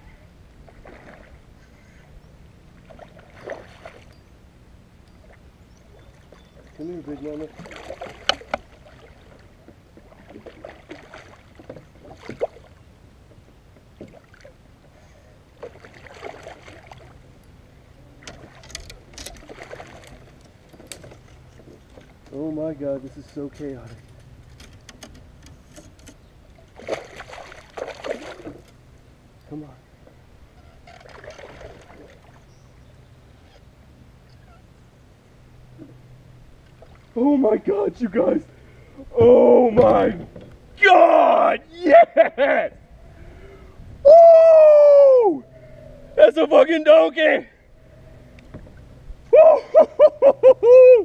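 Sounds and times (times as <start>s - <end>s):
water movement: 0.0s - 42.2s
fish splashing in water: 15.6s - 17.2s, 26.7s - 28.5s.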